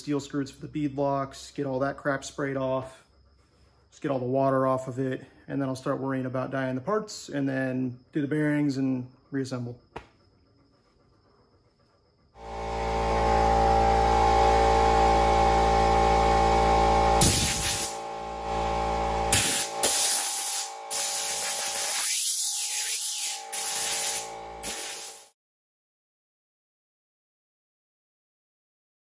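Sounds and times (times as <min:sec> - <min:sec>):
air compressor motor running: 0:12.4 - 0:25.3
compressed air hissing from blow gun: 0:17.2 - 0:18.0, 0:19.3 - 0:25.3.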